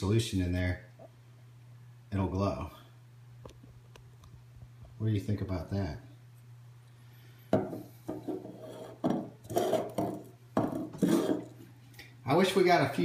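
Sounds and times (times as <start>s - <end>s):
plastic cups knocking on wood: 7.6s - 11.5s.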